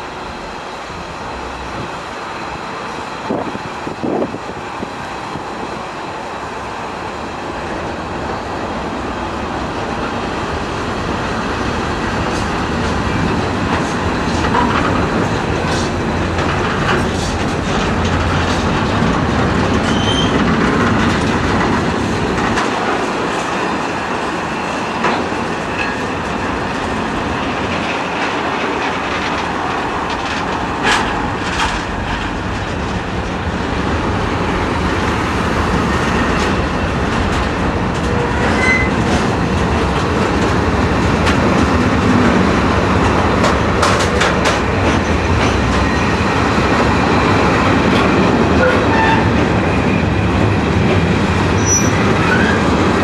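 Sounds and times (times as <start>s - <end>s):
rumble of train wheels: 0.0s - 53.0s
clicks at rail joints: 12.3s - 23.5s, 27.6s - 33.4s, 36.4s - 46.0s
faint wheel squeal: 19.8s - 20.4s, 38.4s - 39.0s, 51.6s - 52.6s.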